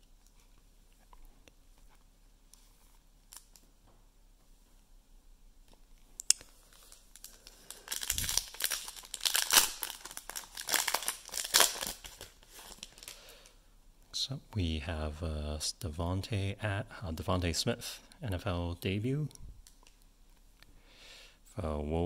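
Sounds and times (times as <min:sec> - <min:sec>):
foil wrapper crinkling and tearing: 0:06.7 - 0:13.2.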